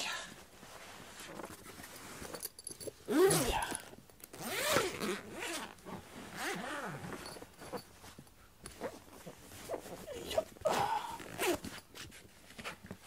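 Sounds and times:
zipper being pulled: 3.1 - 7.8, 8.7 - 11.9.

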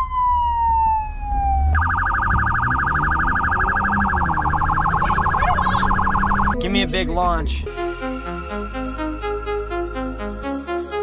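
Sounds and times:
police siren through car speakers: 0.0 - 6.6.

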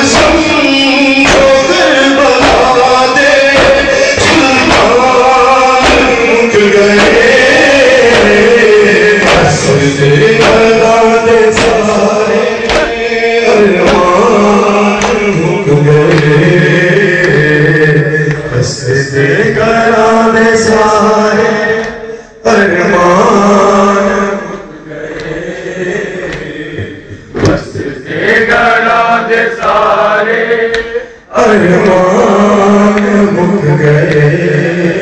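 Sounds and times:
men chanting a lament: 0.0 - 35.0
hands slapping chests: 0.1 - 9.7, 10.4 - 10.9, 11.5 - 13.0, 13.8 - 15.4, 16.0 - 16.5, 30.7 - 31.0.

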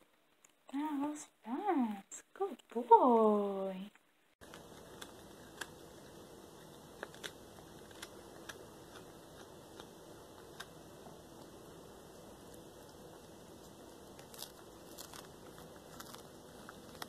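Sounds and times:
cat crunching small bones: 4.4 - 10.9, 14.1 - 17.0.

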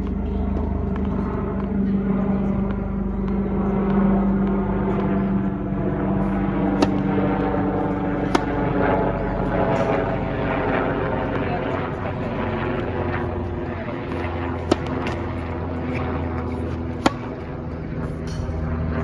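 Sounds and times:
engine-like drone: 0.0 - 19.0
tennis racket striking ball: 6.1 - 10.3, 12.8 - 18.6.

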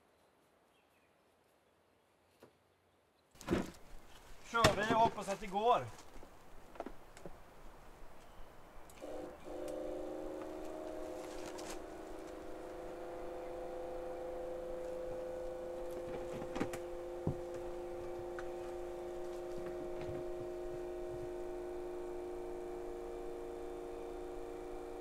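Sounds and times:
electric water pump humming: 8.9 - 25.0.

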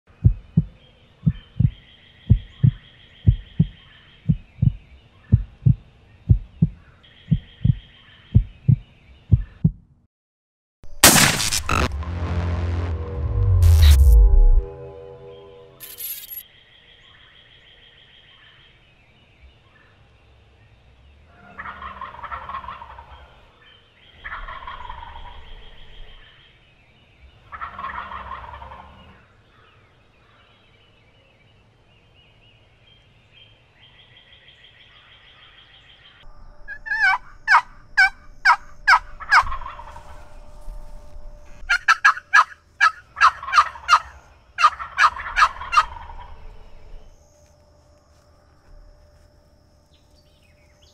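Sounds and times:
turkey gobbling: 21.6 - 23.4, 24.2 - 25.4, 27.5 - 28.9, 36.7 - 40.2, 41.7 - 46.4
sharp turkey yelps: 36.8 - 40.0, 41.7 - 46.1.

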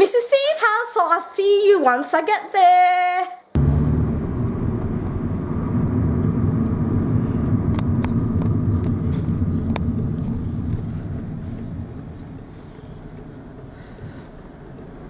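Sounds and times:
car engine and road rumble: 3.6 - 15.0
faint clicks: 7.7 - 15.0.

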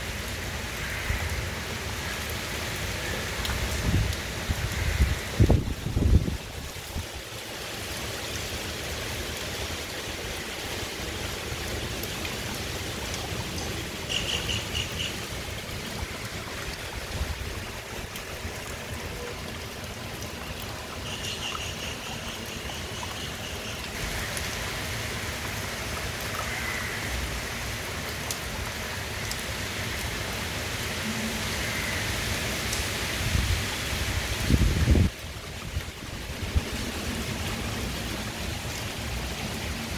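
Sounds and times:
heavy rain on trees and roofs: 0.0 - 39.9
wind rumbling on microphone: 3.5 - 7.2, 33.2 - 38.0.

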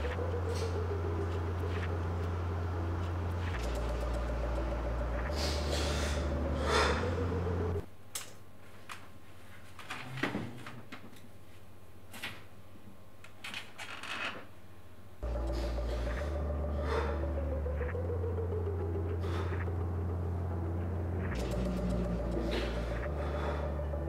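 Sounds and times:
low hum: 0.0 - 7.9, 15.2 - 24.0.

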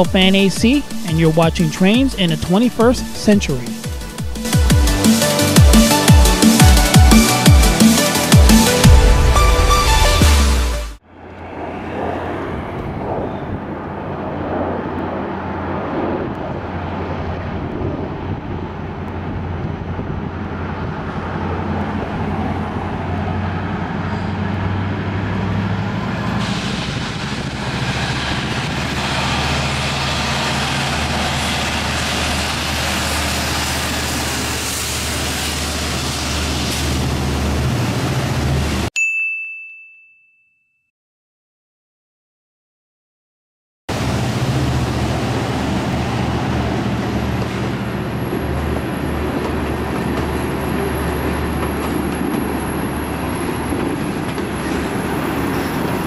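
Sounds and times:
diesel locomotive engines droning: 0.0 - 38.9, 43.9 - 56.0
wheel and rail noise: 11.1 - 38.9, 43.9 - 56.0
short high ding: 39.0 - 40.9.

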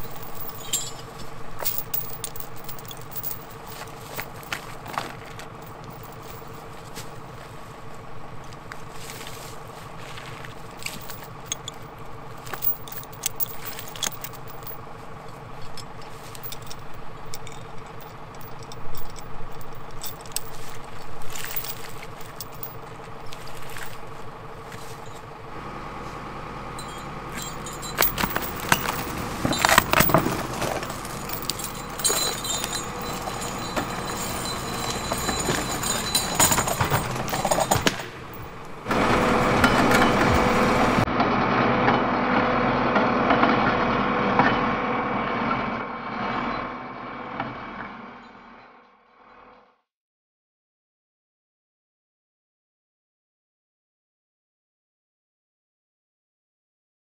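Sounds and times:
chains and logs clinking: 0.0 - 41.1
tractor diesel engine running: 0.0 - 48.9.

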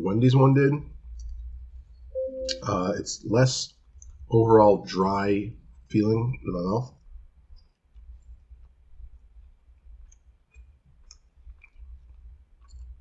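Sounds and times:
person chewing: 7.7 - 13.0.

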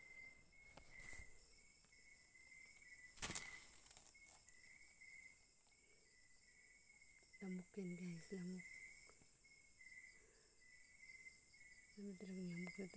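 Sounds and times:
crickets chirping: 0.0 - 12.9
hand smacking mosquito net: 3.2 - 4.0
net rustling: 3.2 - 4.6.

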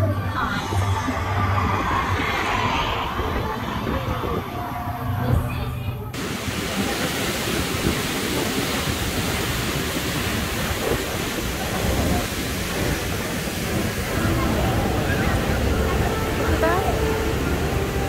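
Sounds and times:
waterfall rushing: 6.2 - 18.0.

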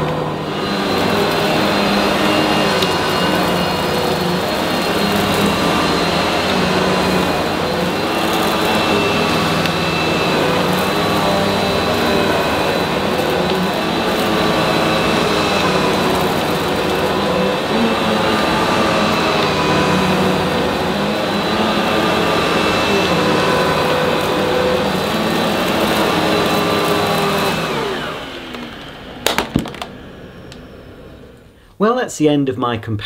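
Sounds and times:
vacuum cleaner motor whine: 0.0 - 31.6.

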